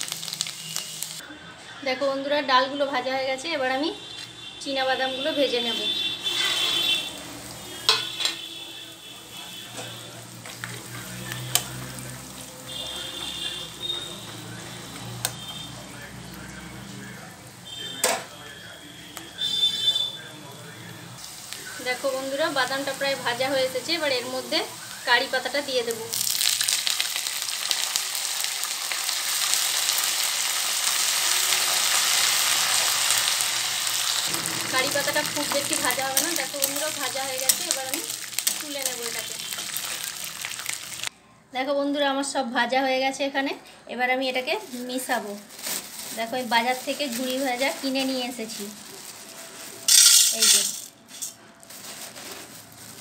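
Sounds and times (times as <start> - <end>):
peanuts sizzling in hot oil: 0.0 - 1.2, 5.7 - 17.9, 21.2 - 41.1, 46.2 - 51.3.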